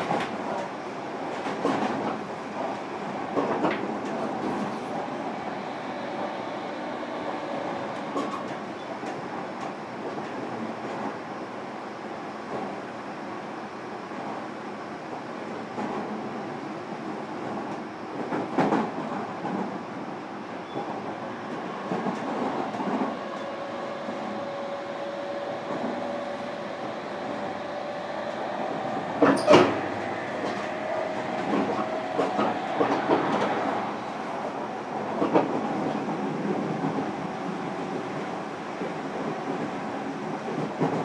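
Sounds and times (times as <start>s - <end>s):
train rolling noise: 0.0s - 41.0s
wheels clacking over rail joints: 28.3s - 33.9s.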